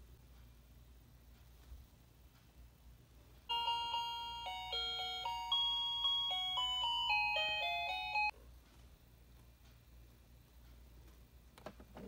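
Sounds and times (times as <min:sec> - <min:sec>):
toy chiming tune: 0:03.5 - 0:08.4.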